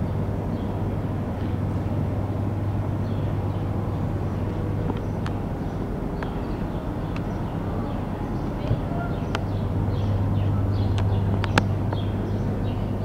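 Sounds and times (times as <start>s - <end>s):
air conditioner hum: 0.0s - 13.0s
faint clicks: 10.8s - 12.2s.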